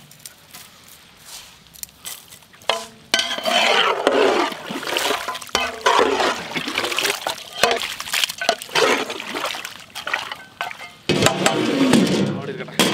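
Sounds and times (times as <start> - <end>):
ladle scraping metal pot: 2.7 - 12.9.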